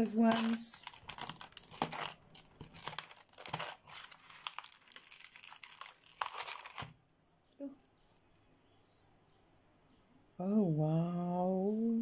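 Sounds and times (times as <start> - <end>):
plastic tray crinkling and clicking: 0.3 - 7.0.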